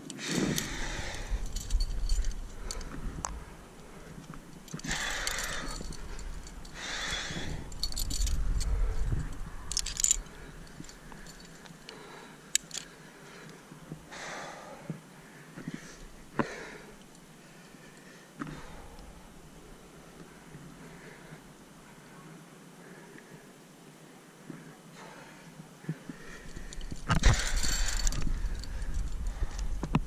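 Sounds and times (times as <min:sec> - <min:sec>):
carabiners jangling and clinking: 0:00.0 - 0:13.0, 0:26.2 - 0:29.8
wind buffeting on microphone: 0:00.4 - 0:11.0, 0:26.5 - 0:30.0.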